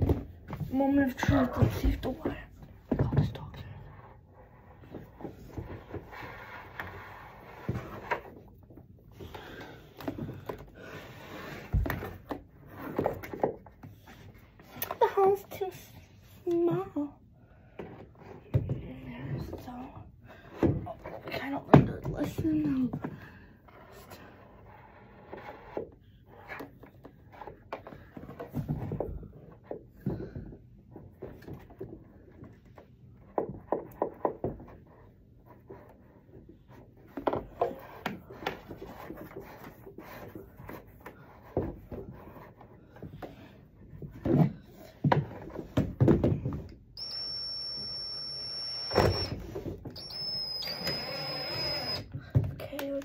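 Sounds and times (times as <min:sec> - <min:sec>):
power drill whining: 0:47.0 - 0:52.1.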